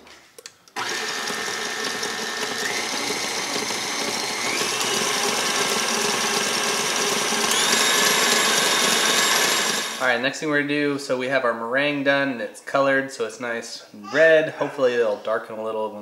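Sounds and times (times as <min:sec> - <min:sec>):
stand mixer whining: 0:00.8 - 0:10.0.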